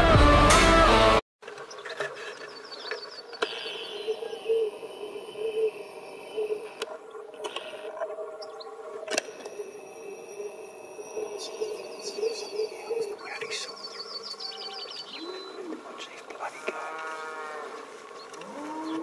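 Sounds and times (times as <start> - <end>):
low steady drone: 9.3 - 14.0.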